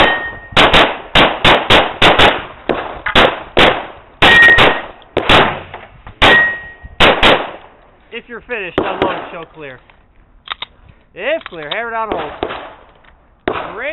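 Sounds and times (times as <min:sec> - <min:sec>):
steel target ringing: 0:00.0 - 0:00.6, 0:04.2 - 0:06.9
pistol shots: 0:00.0 - 0:07.7, 0:08.8 - 0:09.4, 0:12.0 - 0:13.9.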